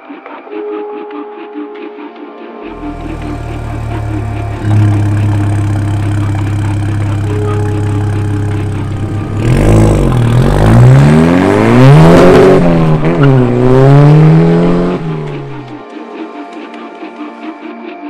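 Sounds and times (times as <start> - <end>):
car engine accelerating hard: 2.7 - 15.8.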